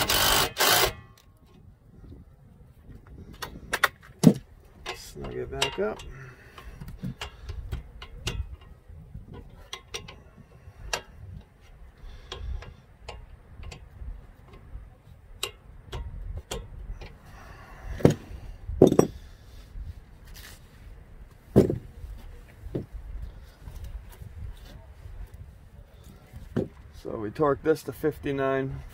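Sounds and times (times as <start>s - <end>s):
metal knocks: 18.8s - 19.2s.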